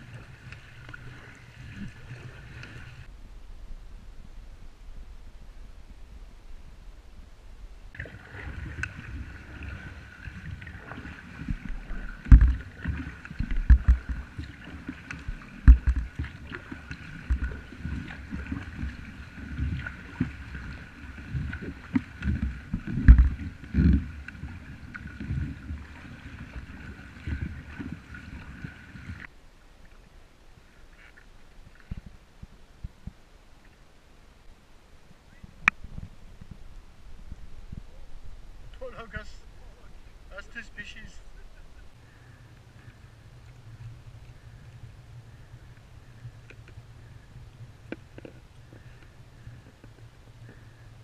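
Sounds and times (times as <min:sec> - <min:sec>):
paddle splashing: 0:00.0 - 0:03.1, 0:07.9 - 0:33.8, 0:35.3 - 0:51.0
water slapping: 0:07.9 - 0:29.3
thumps against kayak hull: 0:11.5 - 0:14.3, 0:15.0 - 0:17.6, 0:21.6 - 0:24.1.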